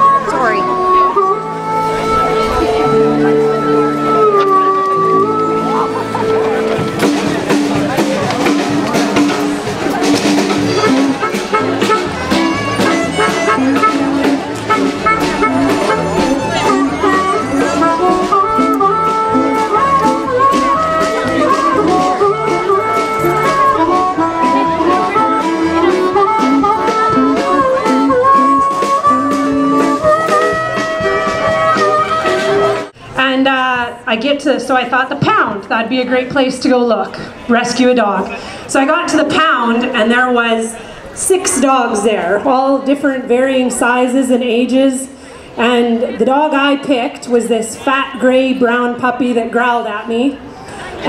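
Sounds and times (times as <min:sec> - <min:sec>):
instrumental music with drums: 0:00.0 - 0:33.0.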